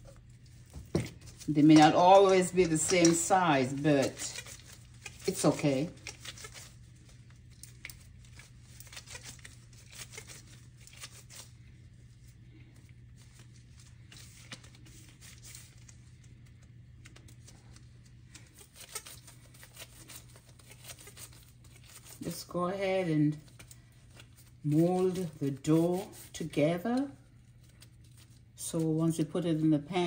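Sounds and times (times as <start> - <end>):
steady low hum: 0.0 - 30.0
sticky dough tearing: 3.7 - 22.3.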